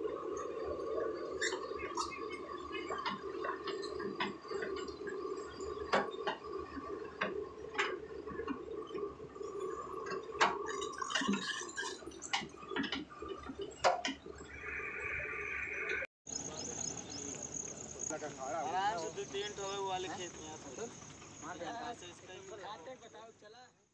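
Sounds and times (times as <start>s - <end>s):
excavator engine hum: 0.0s - 23.1s
sharp clicks and knocks: 10.0s - 14.4s.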